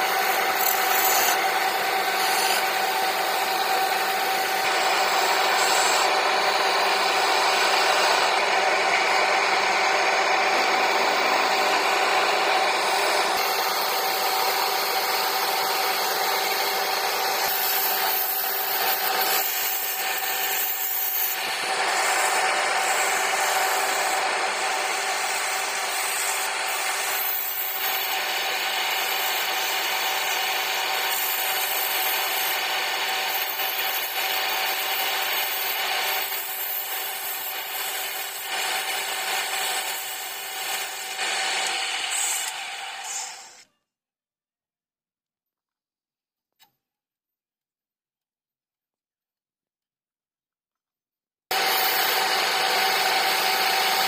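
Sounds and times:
chisel rasping on wood: 0.0s - 6.1s
wood lathe humming: 0.0s - 43.6s, 51.5s - 54.0s.

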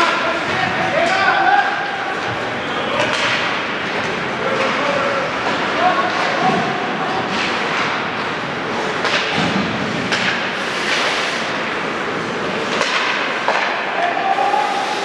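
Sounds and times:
hockey sticks and puck clacking: 0.0s - 15.0s
skate blades scraping ice: 9.8s - 12.9s.

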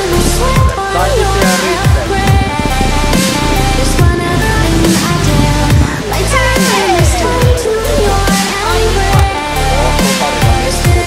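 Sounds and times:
electronic dance music: 0.0s - 11.0s
falling bass hits: 0.2s - 8.3s.

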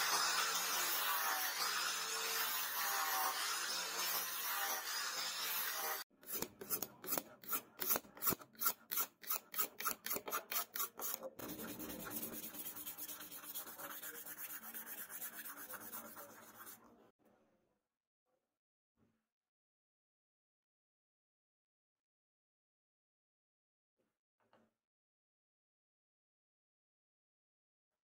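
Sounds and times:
angle grinder sanding wood: 0.0s - 16.8s
sandpaper strokes on wood: 0.0s - 16.8s.

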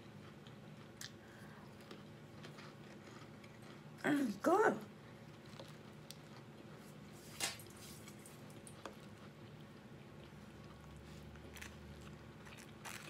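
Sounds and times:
pie crust crunching: 5.1s - 13.0s.

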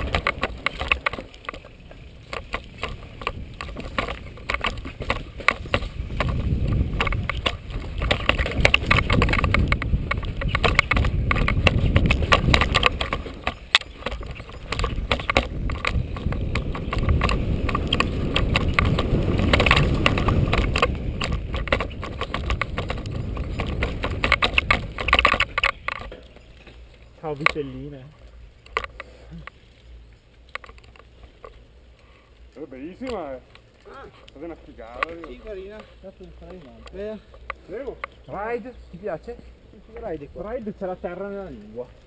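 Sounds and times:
bike chain and frame rattling: 0.0s - 42.0s
tyres rumbling on dirt: 0.0s - 42.0s.

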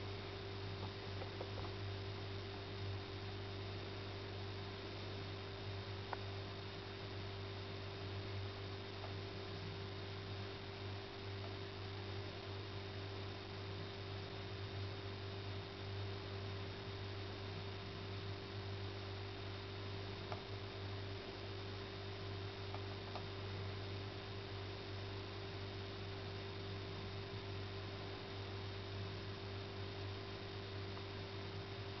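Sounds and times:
faint ticks: 6.1s - 6.3s.

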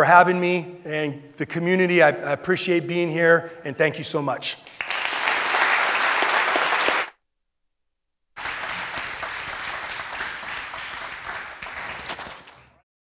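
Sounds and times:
audience applauding: 4.7s - 7.1s, 8.4s - 12.6s.

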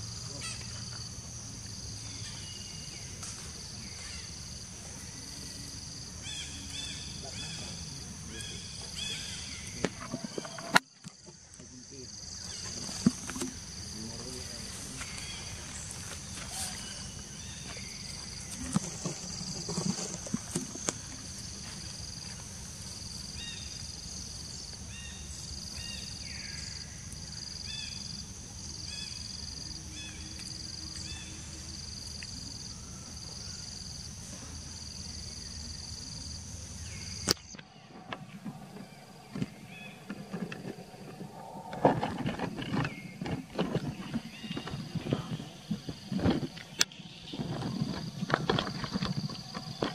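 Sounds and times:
insects buzzing in pulsing drone: 0.0s - 49.9s
rustles and clicks: 12.5s - 22.9s, 37.3s - 49.9s.

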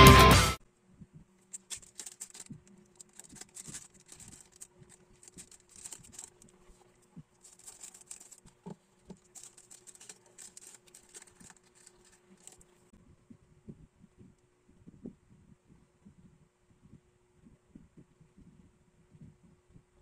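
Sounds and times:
plastic bag crinkling: 1.5s - 12.9s.

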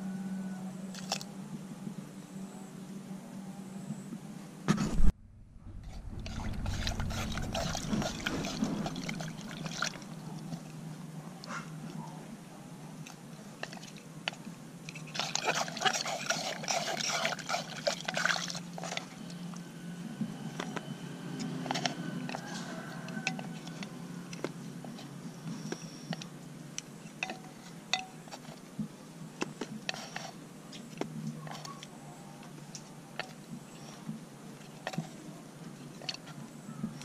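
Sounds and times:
loud thump: 4.7s - 9.2s
chopsticks in water splashing: 6.2s - 10.7s, 13.6s - 19.3s.

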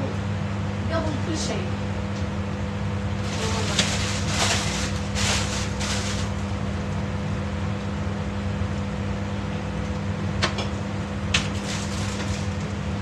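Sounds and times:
household appliance humming: 0.0s - 13.0s
plastic bag rustling: 3.2s - 6.5s, 11.4s - 12.7s.

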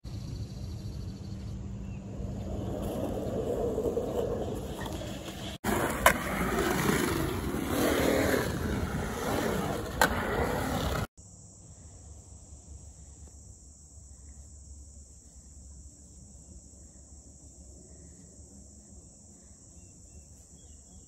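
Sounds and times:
skateboard wheels rolling on concrete: 1.1s - 11.1s
skateboard clack: 2.3s - 11.1s
high insect drone: 11.2s - 21.0s.

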